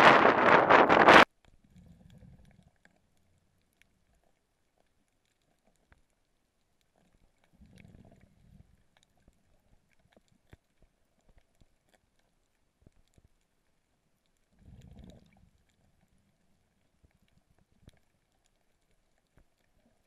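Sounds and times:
wind buffeting microphone: 0:00.0 - 0:01.2
muffled low underwater rumbles: 0:00.0 - 0:20.0
faint clicks: 0:00.7 - 0:20.0.

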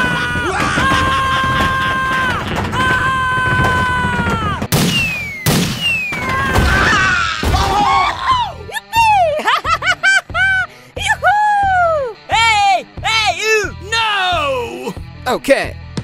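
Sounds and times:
sharp crash hits: 0:04.4 - 0:07.8
falling whistle: 0:04.8 - 0:06.6.

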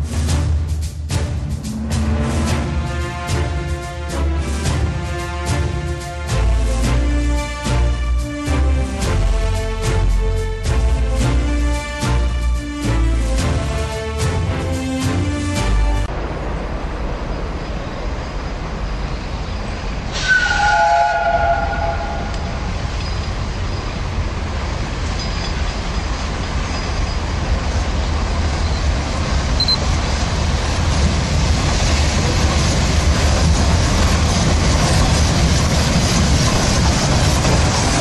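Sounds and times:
steam locomotive rumble: 0:00.0 - 0:38.0
chime-like train whistle: 0:20.2 - 0:22.5.

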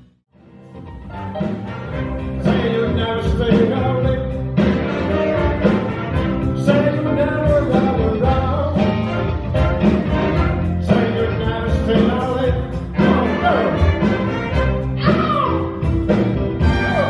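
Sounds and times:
drums: 0:00.0 - 0:17.0
horn section: 0:01.0 - 0:17.0
man singing: 0:02.3 - 0:04.8, 0:06.5 - 0:09.3, 0:10.8 - 0:14.1.

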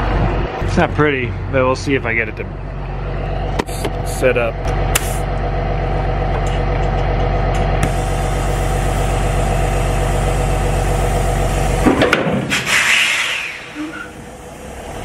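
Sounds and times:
motor droning: 0:02.5 - 0:12.4
air hissing: 0:07.8 - 0:15.0.

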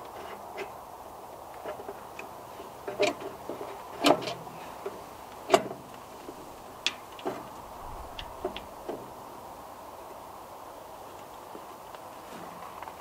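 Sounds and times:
sharp clicks and knocks: 0:02.9 - 0:09.1.

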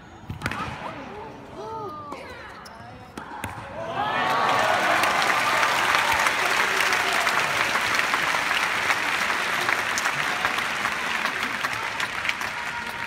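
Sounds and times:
crowd applauding: 0:04.1 - 0:13.0.

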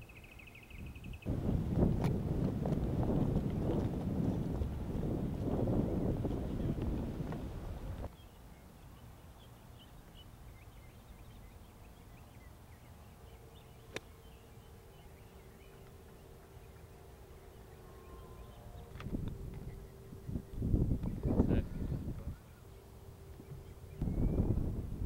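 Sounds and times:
low steady hum: 0:00.0 - 0:25.0
wind buffeting microphone: 0:00.8 - 0:08.1, 0:18.8 - 0:22.4, 0:23.4 - 0:25.0.

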